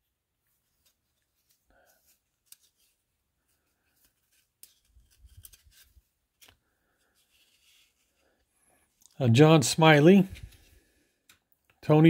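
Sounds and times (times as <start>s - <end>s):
trading cards shuffling: 0.6s - 8.4s.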